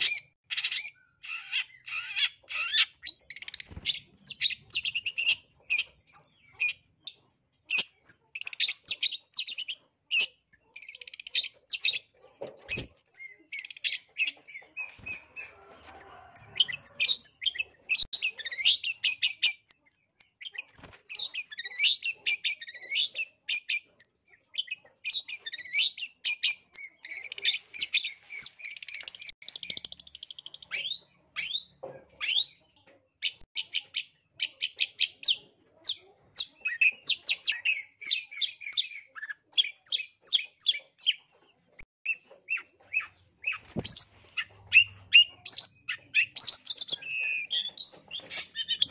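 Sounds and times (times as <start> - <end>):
shrike chattering song: 42.1 - 48.9.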